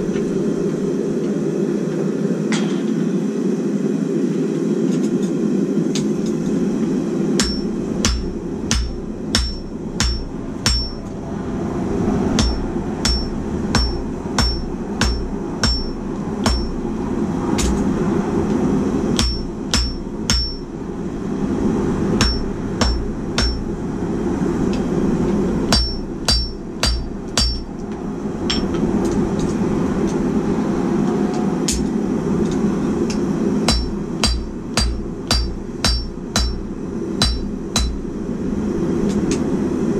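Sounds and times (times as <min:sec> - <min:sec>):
low rushing noise: 0:00.0 - 0:39.9
hammer ringing on anvil: 0:07.4 - 0:11.1, 0:12.4 - 0:16.8, 0:19.2 - 0:20.7, 0:22.2 - 0:23.6, 0:25.7 - 0:27.7, 0:33.7 - 0:36.6, 0:37.2 - 0:38.0.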